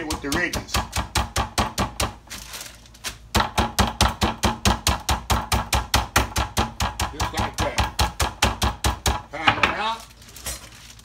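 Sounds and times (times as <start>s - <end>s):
meat mallet pounding on board: 0.0s - 2.2s, 3.3s - 9.6s.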